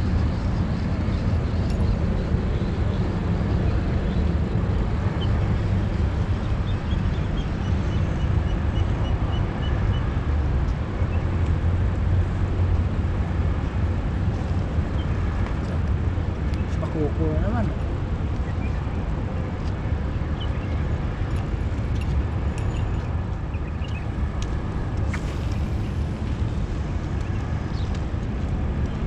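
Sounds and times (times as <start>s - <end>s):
low rumbling background noise: 0.0s - 29.0s.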